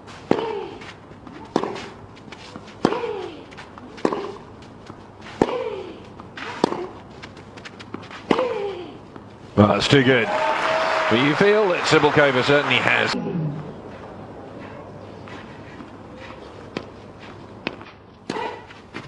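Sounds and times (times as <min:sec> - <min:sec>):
racket striking tennis ball: 0:00.2 - 0:08.7, 0:17.6 - 0:19.0
light footsteps: 0:13.6 - 0:19.0.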